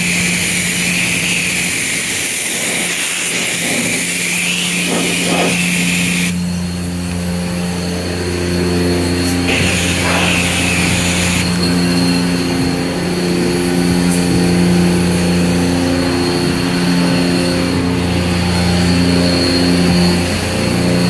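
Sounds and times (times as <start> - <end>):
spray gun hissing: 0.0 - 7.6, 9.0 - 13.1
high-pressure pump humming: 0.0 - 21.0.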